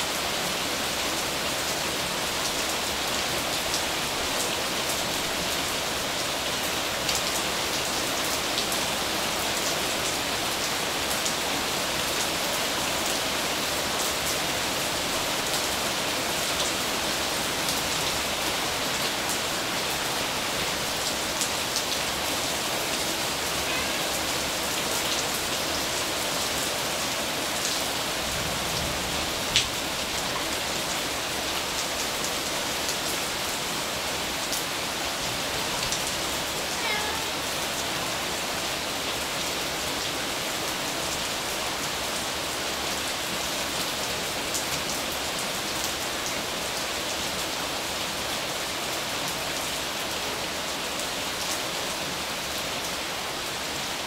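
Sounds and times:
steady rain falling: 0:00.0 - 0:54.0.

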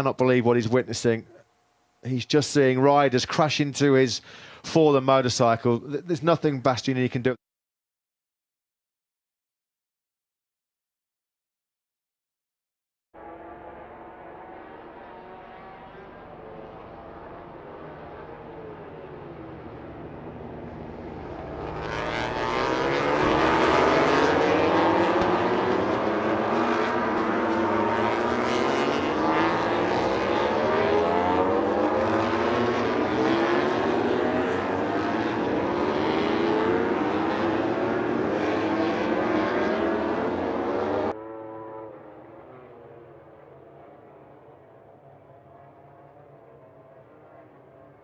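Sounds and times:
racing motorcycle engines accelerating: 0:13.2 - 0:48.0.

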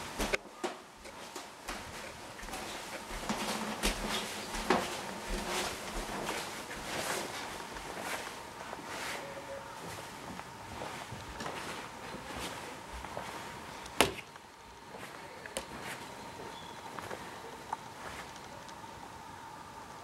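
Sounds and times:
footsteps on wooden floorboards: 0:01.0 - 0:08.9.

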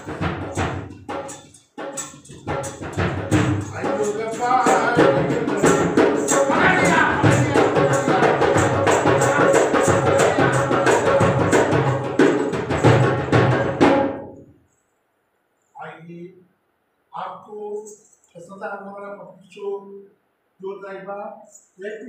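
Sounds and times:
lively dance music: 0:02.8 - 0:13.9.

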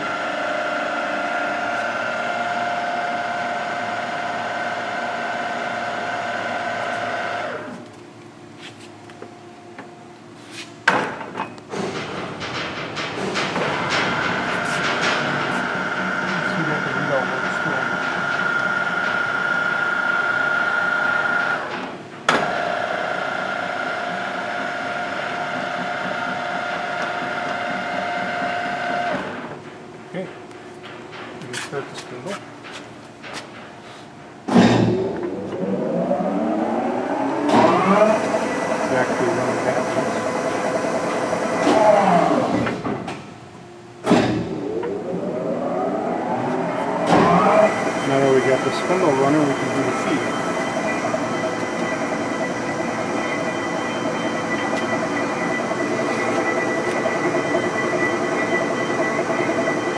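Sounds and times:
lathe carriage drive whining: 0:12.0 - 0:29.7, 0:35.1 - 0:43.0, 0:44.6 - 0:59.9
sharp clunk: 0:34.5 - 0:35.1, 0:44.0 - 0:44.6.

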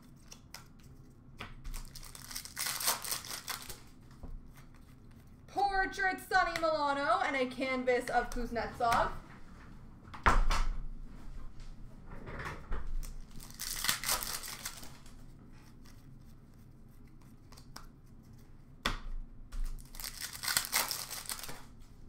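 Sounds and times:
wrapper tearing and crinkling: 0:01.7 - 0:03.9, 0:13.0 - 0:15.1, 0:19.6 - 0:21.7.

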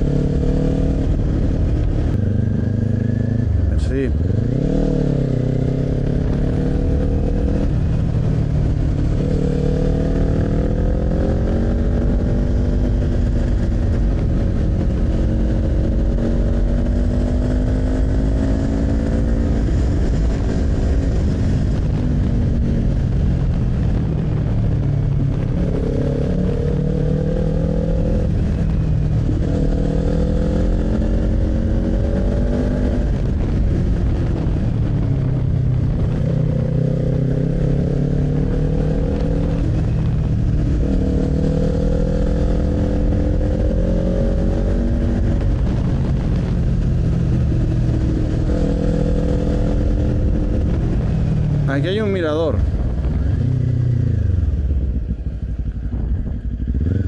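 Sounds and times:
motorcycle engine revving: 0:00.0 - 0:57.0
wind rushing: 0:00.0 - 0:57.0.

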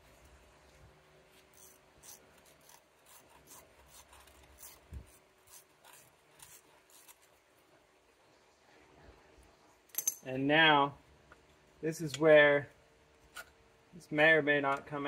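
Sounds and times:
allen key clicking on metal: 0:09.9 - 0:10.2.

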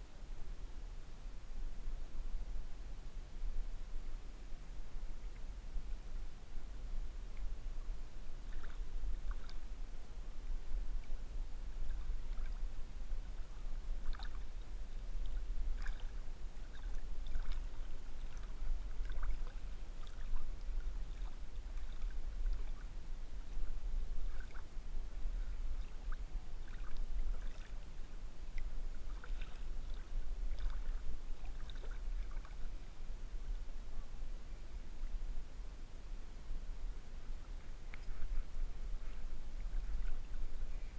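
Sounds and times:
steady low rumble: 0:00.0 - 0:40.9
river water sloshing and lapping: 0:04.9 - 0:33.8, 0:37.1 - 0:40.9
small water splashes and drips: 0:08.4 - 0:09.7, 0:10.9 - 0:32.8.

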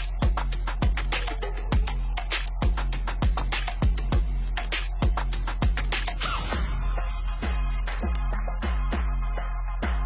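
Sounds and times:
electronic beat with bass kicks: 0:00.0 - 0:10.0.

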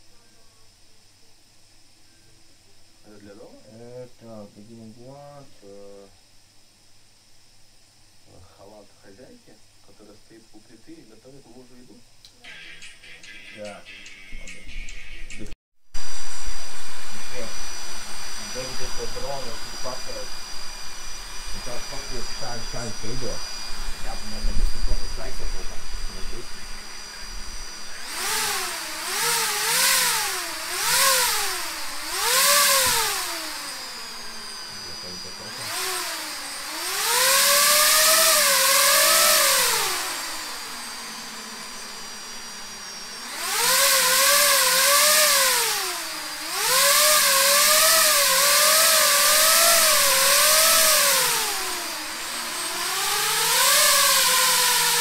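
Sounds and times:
drone motors revving: 0:16.0 - 0:55.0.

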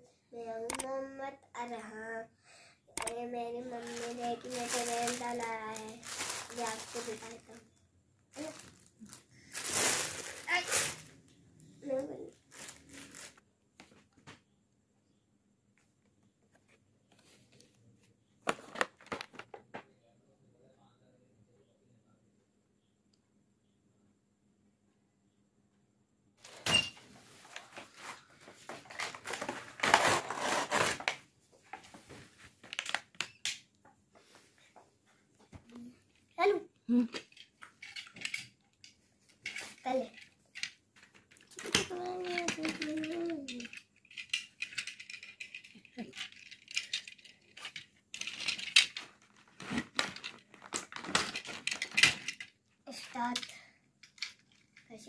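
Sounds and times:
cardboard and plastic packaging rustling: 0:03.5 - 0:13.4, 0:26.4 - 0:33.2, 0:39.4 - 0:52.6
plastic parts clattering and clicking: 0:03.7 - 0:07.7, 0:18.4 - 0:19.8, 0:28.6 - 0:31.2, 0:32.6 - 0:33.7, 0:37.2 - 0:52.6, 0:53.2 - 0:54.9.

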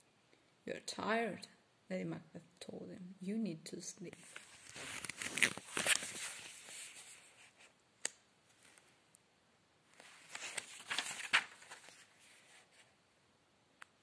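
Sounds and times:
rustling handling noise: 0:04.1 - 0:07.8, 0:09.9 - 0:13.0.

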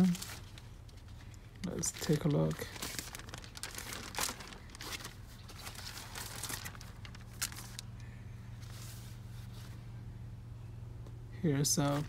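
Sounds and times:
plastic bag crinkling: 0:00.0 - 0:08.0
faint low hum: 0:00.0 - 0:12.0.

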